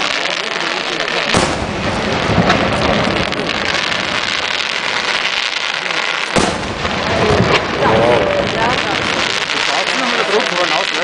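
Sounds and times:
firework crackle: 0:00.0 - 0:11.0
firework shells bursting: 0:00.0 - 0:11.0
loud firework bang: 0:01.2 - 0:05.3, 0:06.3 - 0:10.0.

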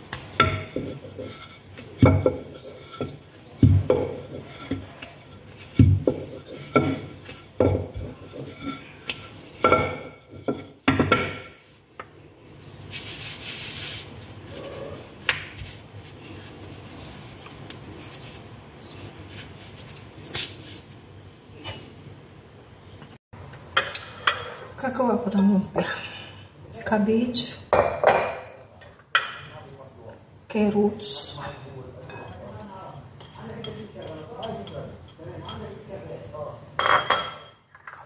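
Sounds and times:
rolling pin rolling dough: 0:00.0 - 0:20.7
dough handled by hand: 0:00.0 - 0:21.9.

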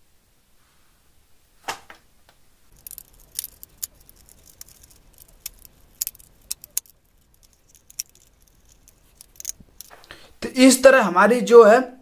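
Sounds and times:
wire and screwdriver clicking: 0:02.7 - 0:10.2.

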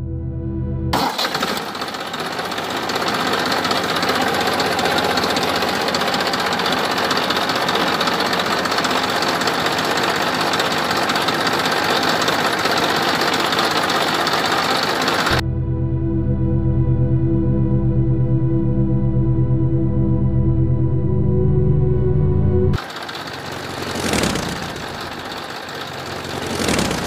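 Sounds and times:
fast mechanical engine running: 0:01.0 - 0:15.4, 0:22.8 - 0:27.0.

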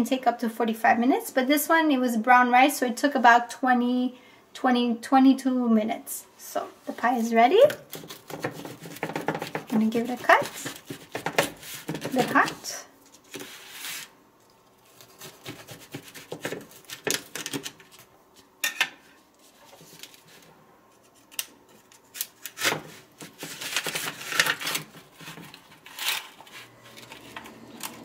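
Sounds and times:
knife scraping foil pie tin: 0:07.0 - 0:14.1, 0:14.8 - 0:18.0, 0:22.2 - 0:28.0
spatula scraping under slice: 0:07.9 - 0:14.1, 0:14.8 - 0:17.1.

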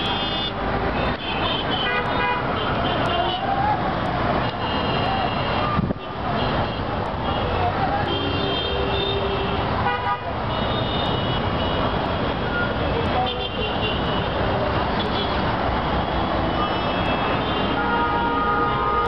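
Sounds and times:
vehicle horns honking: 0:00.0 - 0:03.4, 0:04.4 - 0:19.0
congested street traffic: 0:00.0 - 0:19.0.

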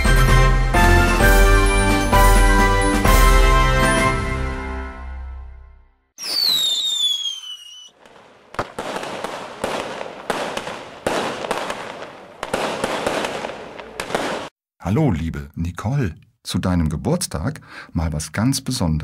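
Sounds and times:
firework whistle falling: 0:06.2 - 0:08.0
firework crackling bursts: 0:06.2 - 0:14.5.

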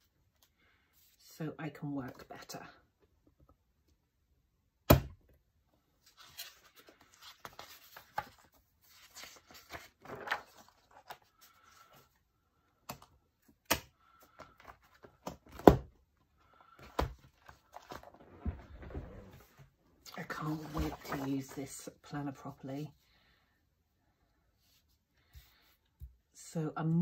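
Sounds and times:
paper pages rustling: 0:06.0 - 0:12.1, 0:16.6 - 0:21.9.

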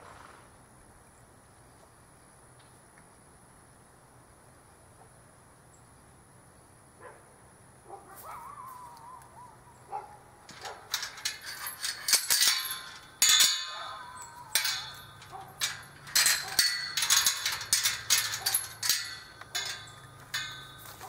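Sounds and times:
metal gate clanking: 0:10.4 - 0:21.0.

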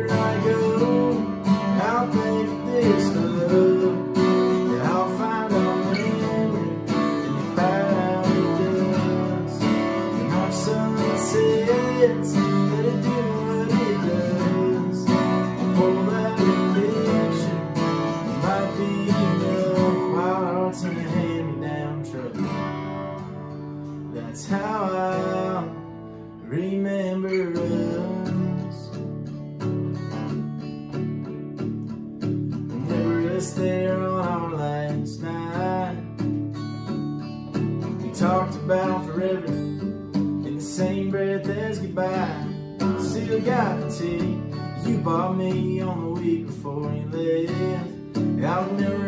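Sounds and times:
acoustic guitars playing country song: 0:00.0 - 0:49.0.

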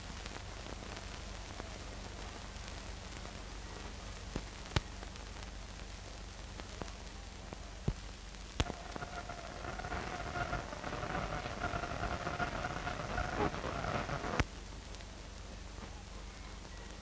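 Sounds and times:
faint two-tone whine: 0:00.0 - 0:17.0
film soundtrack hiss and hum: 0:00.0 - 0:17.0
sharp clicks and pops: 0:07.8 - 0:15.1.

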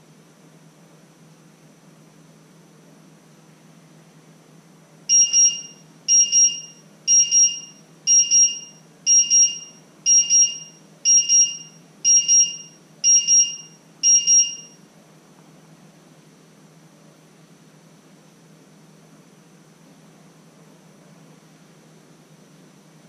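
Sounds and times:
kitchen timer double beeps: 0:05.1 - 0:14.8.

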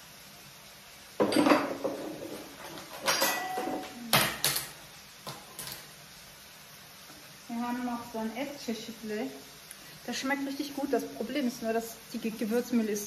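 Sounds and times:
crockery knocks and clinks: 0:01.2 - 0:02.0, 0:03.0 - 0:04.4.

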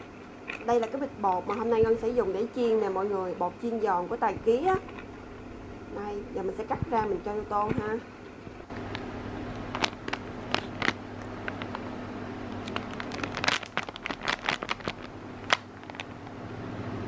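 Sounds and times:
steady low hum: 0:00.0 - 0:17.0
plastic packet crinkling: 0:08.7 - 0:11.9, 0:12.5 - 0:16.2.

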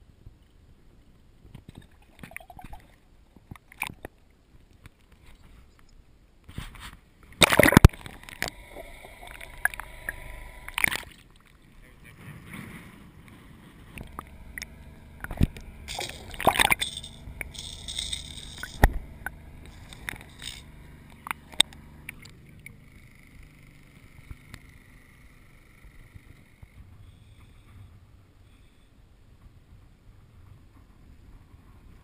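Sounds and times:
water splashing and gurgling: 0:01.6 - 0:04.1, 0:07.2 - 0:12.2, 0:13.2 - 0:22.6.

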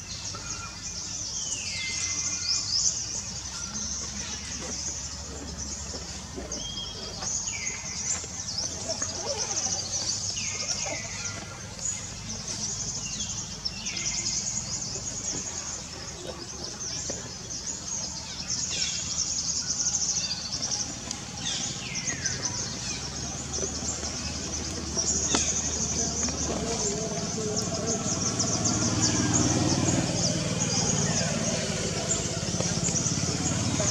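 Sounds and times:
pulsing insect chorus: 0:00.0 - 0:33.9.

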